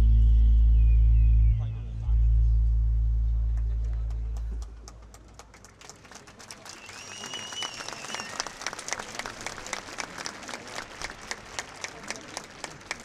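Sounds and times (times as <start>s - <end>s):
whistle from crowd: 0.0s - 2.4s, 6.7s - 8.6s
crowd applauding: 3.6s - 13.0s.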